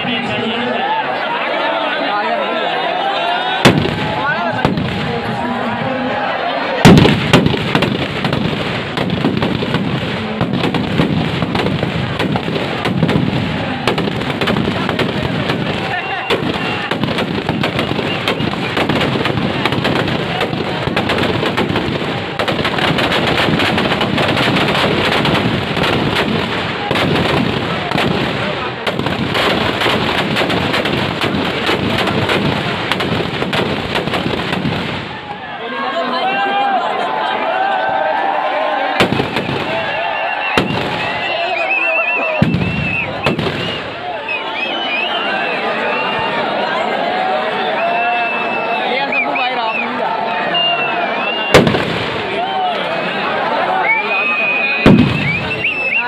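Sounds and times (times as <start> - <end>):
firecrackers banging and crackling: 3.6 - 5.7, 6.8 - 35.4, 38.9 - 45.2, 51.3 - 52.6, 53.8 - 56.0.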